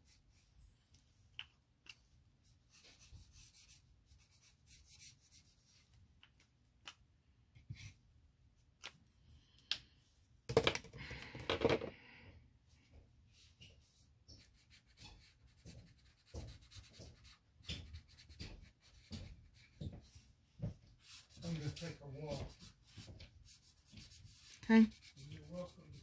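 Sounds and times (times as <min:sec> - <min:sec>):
clatter on table: 0:10.5 - 0:11.9
painting tool scratching paper: 0:14.3 - 0:20.2, 0:20.9 - 0:26.0.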